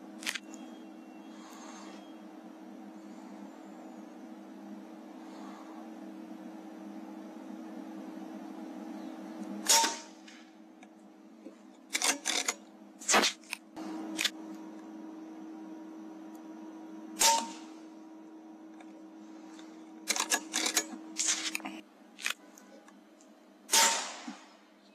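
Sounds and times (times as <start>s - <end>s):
steady low hum: 0.0s - 24.9s
air rifle shots: 9.6s - 10.1s, 17.2s - 17.7s, 23.7s - 24.6s.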